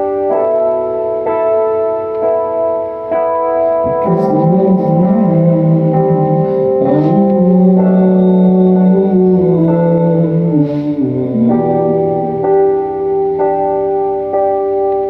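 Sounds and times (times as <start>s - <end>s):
keyboard organ-like chords: 0.0s - 15.0s
low melody line: 0.0s - 15.0s.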